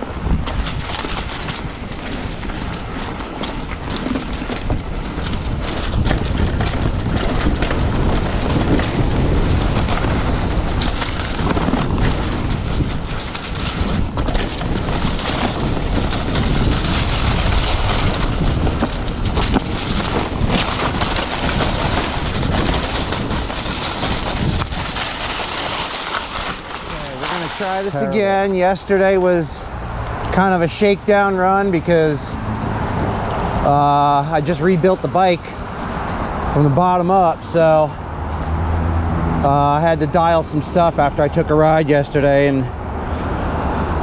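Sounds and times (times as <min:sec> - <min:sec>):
wind on microphone: 0:00.0 - 0:25.6
bike clicks and knocks: 0:00.0 - 0:28.0
tyres rolling on dirt: 0:00.0 - 0:42.7.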